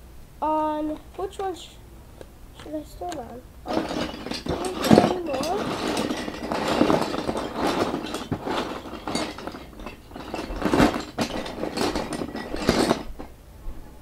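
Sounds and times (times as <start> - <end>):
wooden toy logs clattering: 2.6 - 13.3.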